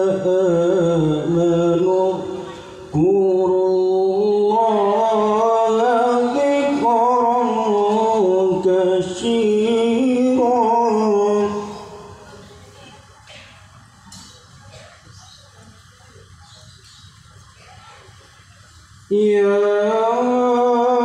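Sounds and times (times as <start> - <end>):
man chanting into a microphone: 0.0 - 12.2, 19.1 - 21.0.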